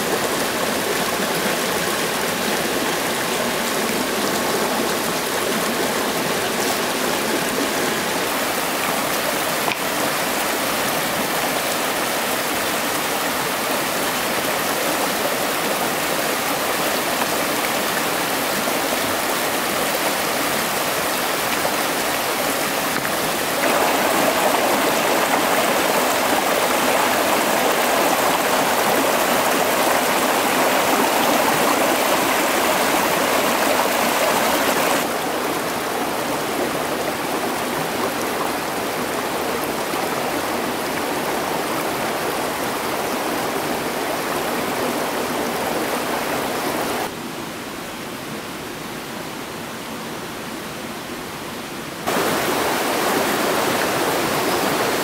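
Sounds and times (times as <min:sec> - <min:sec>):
stream splashing over stones: 0:00.0 - 0:47.1, 0:52.0 - 0:55.0.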